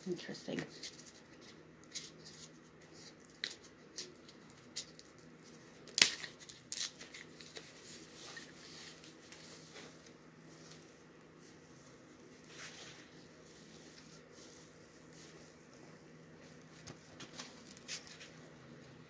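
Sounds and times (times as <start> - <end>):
foam packing wrap crackling: 0.8 - 10.1.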